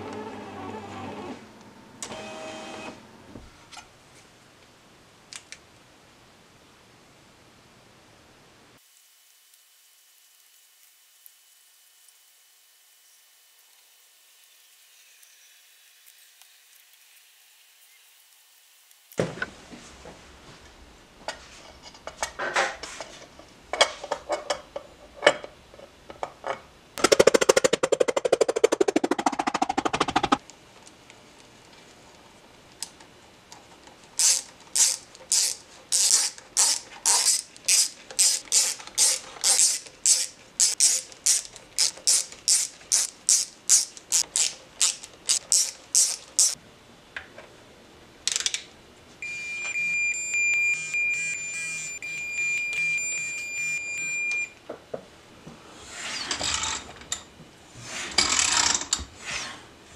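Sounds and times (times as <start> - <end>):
dense rattling burst: 27.0 - 30.4.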